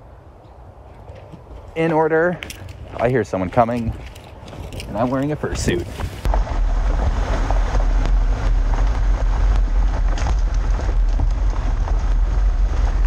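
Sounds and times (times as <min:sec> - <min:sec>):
vehicle low rumble: 0:00.0 - 0:13.0
wind on microphone: 0:02.4 - 0:13.0
knocks and rattles over bumps: 0:03.6 - 0:13.0.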